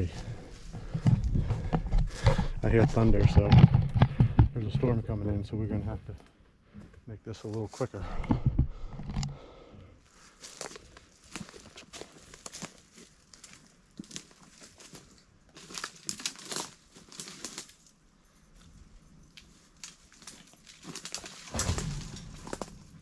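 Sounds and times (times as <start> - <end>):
rustling: 10.1 - 23.0
footsteps crunching in dry leaves: 10.2 - 17.9, 19.4 - 23.0.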